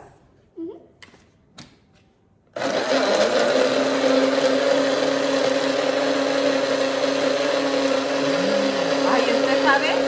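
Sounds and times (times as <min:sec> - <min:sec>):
blender running: 0:02.6 - 0:10.0.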